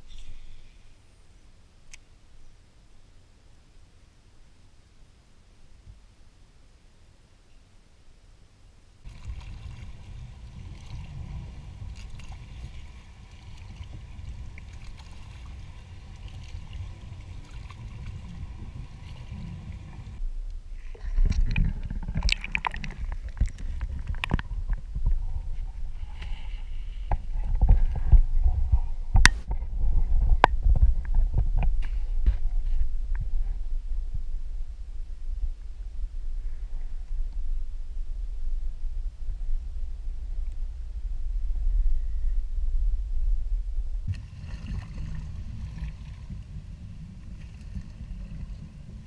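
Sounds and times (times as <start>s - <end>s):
low steady rumble: 0.0s - 49.0s
muffled underwater sloshing: 9.1s - 20.2s, 20.8s - 34.4s, 42.8s - 49.0s.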